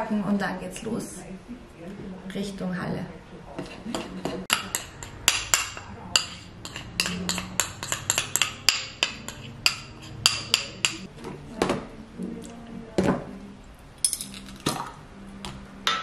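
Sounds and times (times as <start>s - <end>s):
utensil tapping and scraping bowl: 3.5s - 11.8s.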